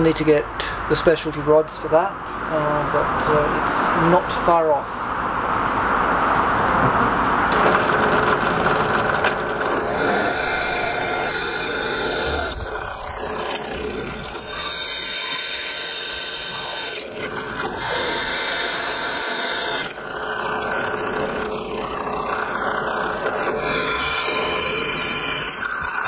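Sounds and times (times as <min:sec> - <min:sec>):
drill press boring into steel: 0:07.5 - 0:26.0.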